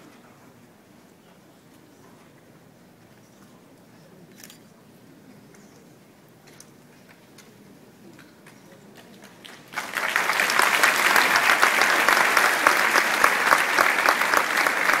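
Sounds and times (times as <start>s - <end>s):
audience applause: 9.2s - 15.0s.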